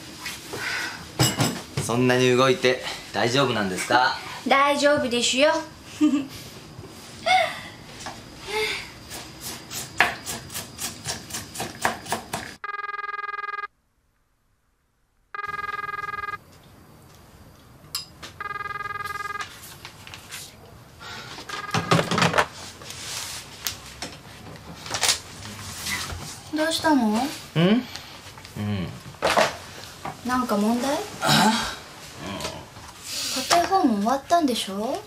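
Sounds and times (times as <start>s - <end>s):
telephone ringing: 12.6s - 13.8s, 15.3s - 16.4s, 18.3s - 19.6s, 21.4s - 22.5s.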